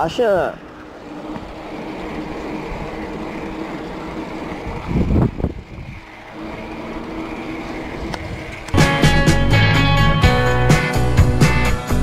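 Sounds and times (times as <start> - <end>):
bicycle tyre and wind noise: 0.0 - 8.8
bicycle bumps: 0.6 - 9.0.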